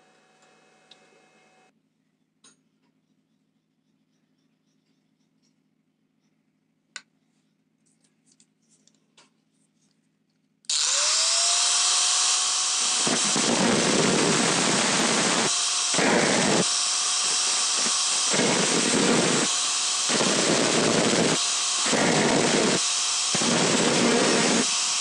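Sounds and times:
angle grinder whining: 10.7 - 25.0
grinder disc rasping on metal: 11.1 - 25.0.

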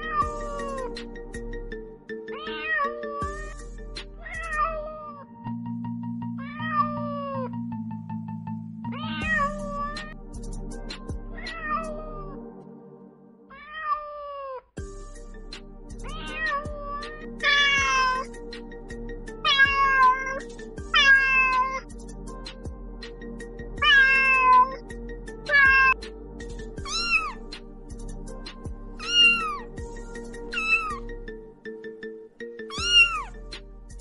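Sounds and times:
kitten meowing: 0.0 - 1.0, 2.4 - 3.6, 4.2 - 5.3, 6.4 - 7.5, 8.9 - 10.2, 11.4 - 12.4, 13.5 - 14.7, 16.1 - 18.3, 19.4 - 21.9, 23.8 - 24.8, 25.5 - 26.0, 26.8 - 27.4, 29.0 - 29.7, 30.5 - 31.0, 32.7 - 33.4
background music: 0.0 - 13.9, 14.8 - 34.0.

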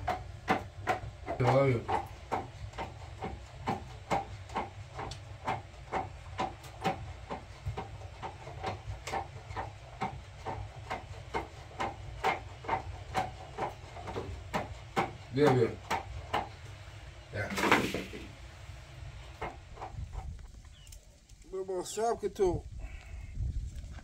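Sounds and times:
rapid even knocks: 0.0 - 16.6
low steady rumble: 0.0 - 24.0.

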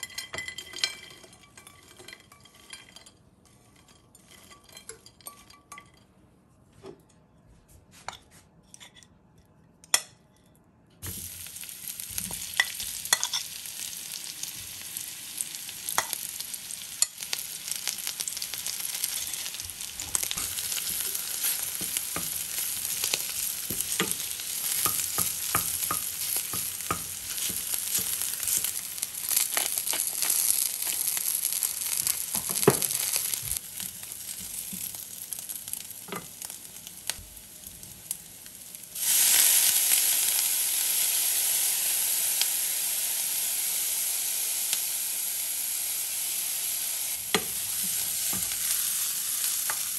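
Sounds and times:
food sizzling in frying pan: 11.0 - 49.9.

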